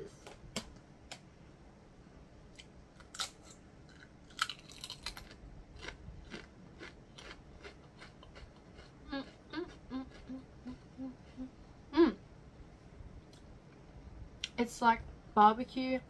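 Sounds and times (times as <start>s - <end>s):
person crunching a chip: 3.0s - 10.4s.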